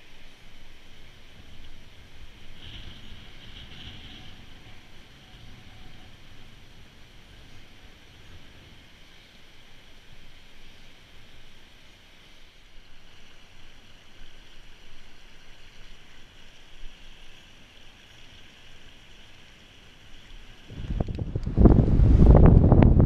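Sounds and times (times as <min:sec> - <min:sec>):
river water rushing: 0:00.0 - 0:22.6
wind on microphone: 0:20.6 - 0:23.0.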